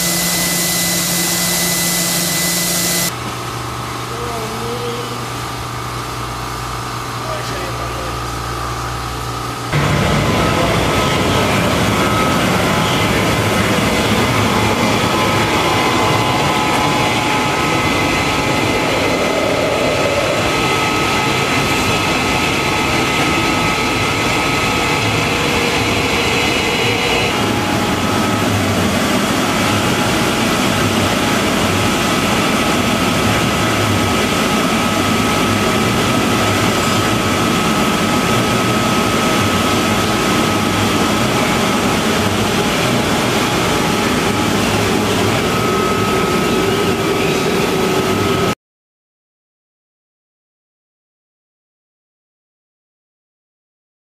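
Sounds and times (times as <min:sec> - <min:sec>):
sandblasting machine roaring: 0:00.0 - 0:03.1, 0:09.8 - 0:48.2
thin steady whine: 0:00.0 - 0:03.3, 0:09.4 - 0:48.5.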